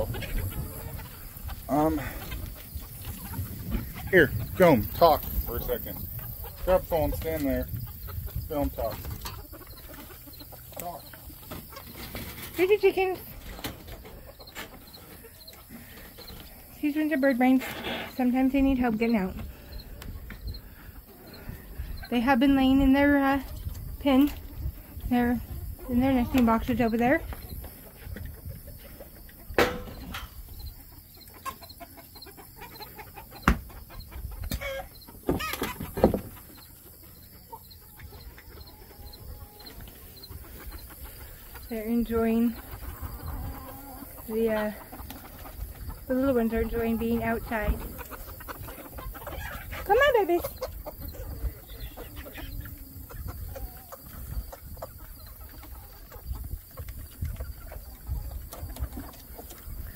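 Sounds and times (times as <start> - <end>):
chickens clucking and cheeping: 0.0 - 59.9.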